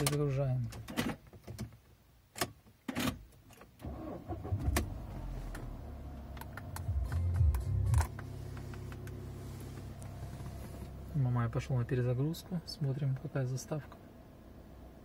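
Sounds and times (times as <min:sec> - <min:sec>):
car engine idling: 0:03.9 - 0:15.0.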